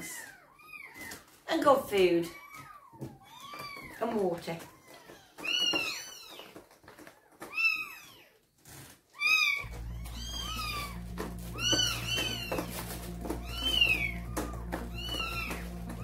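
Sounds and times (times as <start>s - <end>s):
cats meowing: 0.0s - 1.4s, 2.2s - 16.0s
steady low drone: 9.6s - 16.0s.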